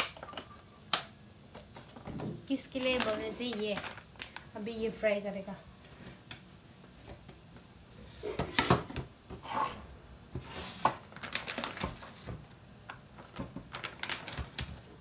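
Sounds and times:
plastic packet crinkling: 2.7s - 4.5s, 11.1s - 12.1s, 13.7s - 14.7s.

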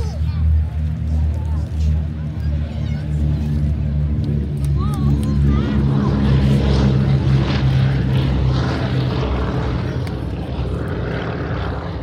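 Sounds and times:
propeller aircraft engines droning: 0.0s - 12.0s.

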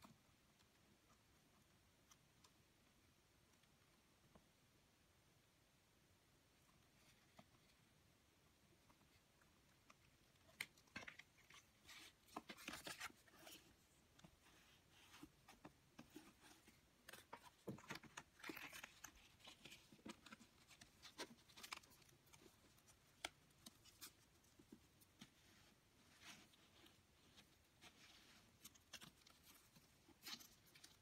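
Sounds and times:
paper rustling: 10.4s - 31.0s.

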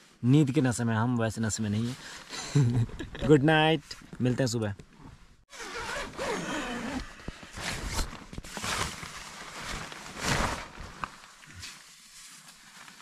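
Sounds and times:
tent zipper rasping: 5.5s - 10.9s.

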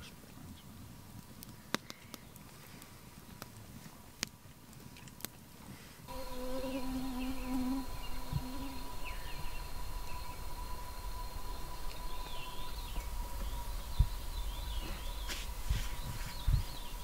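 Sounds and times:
thin high tone: 6.1s - 15.0s
insect buzzing: 6.1s - 15.1s
faint chirps: 6.1s - 17.0s.

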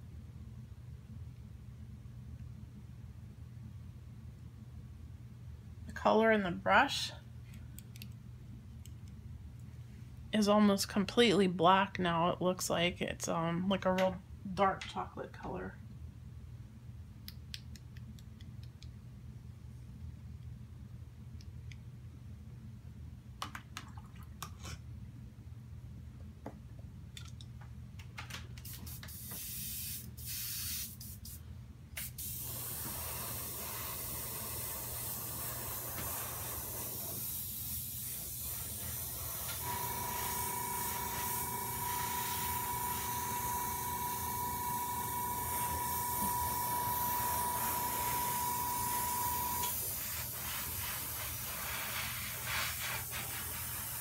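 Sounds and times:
airbrush air hiss: 28.7s - 31.4s, 32.0s - 54.0s
steady high tone: 39.6s - 49.8s.

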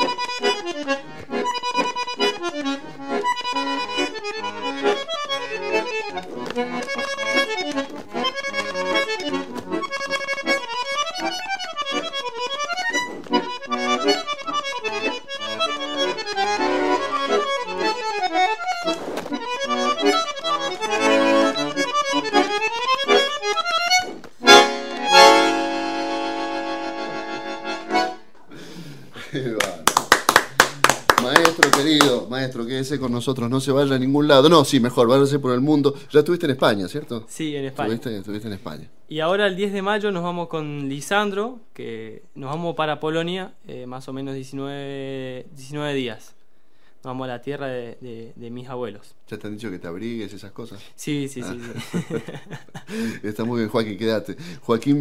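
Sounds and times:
solo bandoneon playing tango: 0.0s - 28.3s.

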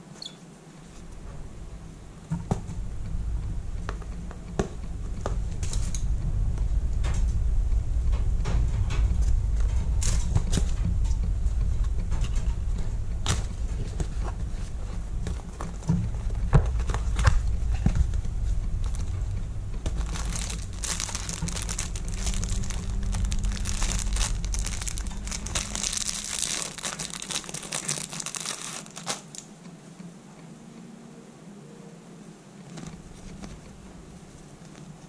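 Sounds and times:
plastic wrapper crinkling: 18.8s - 19.2s, 19.8s - 29.5s.

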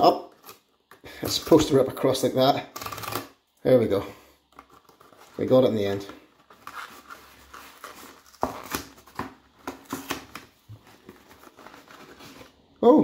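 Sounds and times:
cardboard box rustling: 4.6s - 12.7s.

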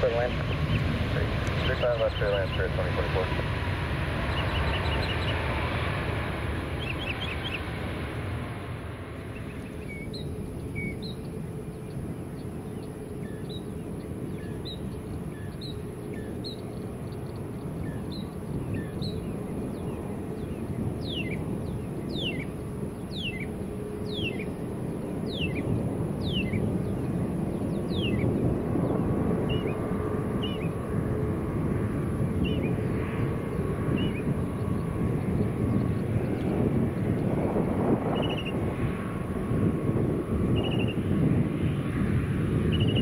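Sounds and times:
low rumble: 0.0s - 13.3s
bird chirps: 4.2s - 5.5s, 6.8s - 7.8s, 9.3s - 29.8s, 30.4s - 30.8s, 42.7s - 43.0s.

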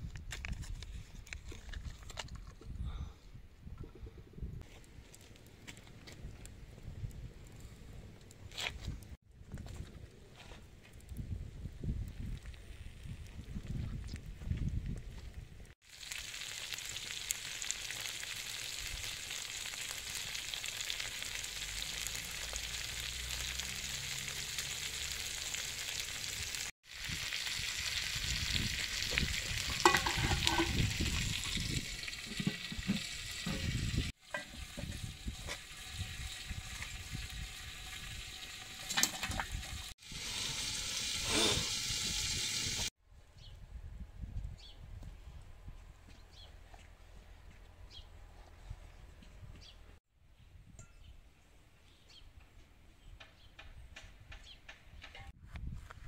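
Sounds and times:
food sizzling in oil: 15.8s - 42.9s.

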